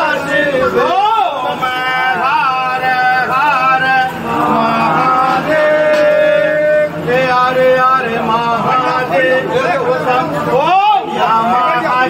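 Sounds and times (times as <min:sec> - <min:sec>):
man chanting: 0:00.0 - 0:12.0.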